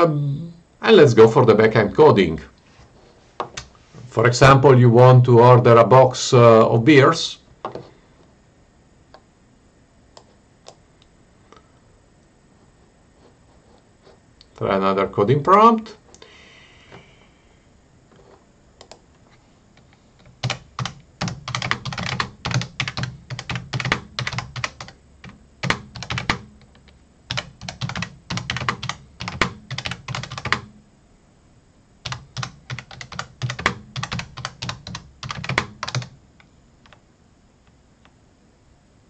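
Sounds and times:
keyboard typing: 20.2 - 30.7, 32.0 - 36.2.

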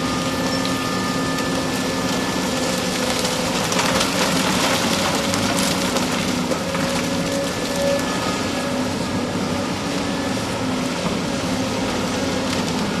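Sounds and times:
diesel engine drone: 0.0 - 13.0
hydraulic whine: 0.0 - 13.0.

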